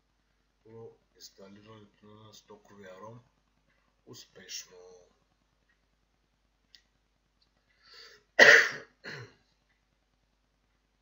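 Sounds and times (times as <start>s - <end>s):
man coughing: 8.4s - 9.4s.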